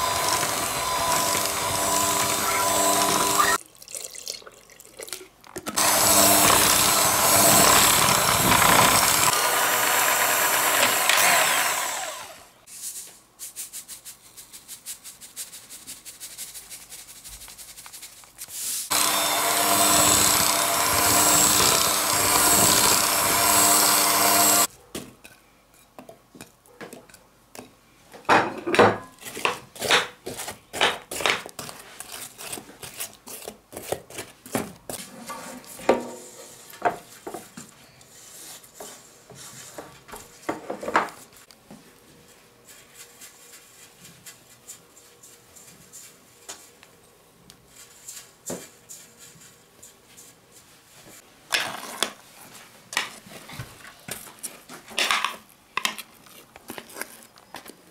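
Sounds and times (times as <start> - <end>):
electric hand mixer running: 0.0 - 3.6, 5.8 - 12.6, 18.9 - 24.7.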